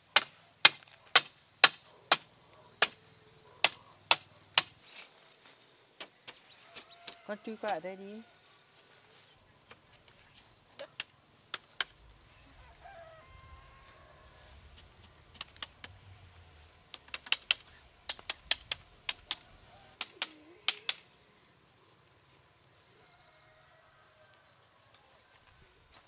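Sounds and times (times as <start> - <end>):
hand tool tapping bamboo panel: 16.9 - 19.4, 20.0 - 21.0.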